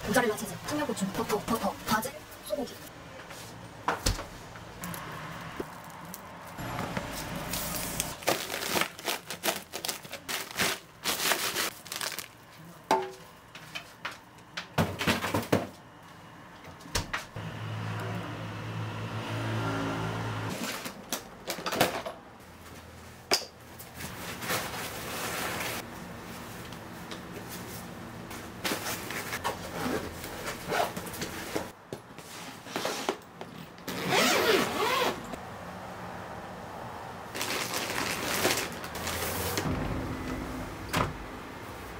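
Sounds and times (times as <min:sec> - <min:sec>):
plastic bags crinkling: 0:07.7 - 0:12.6, 0:37.3 - 0:39.6.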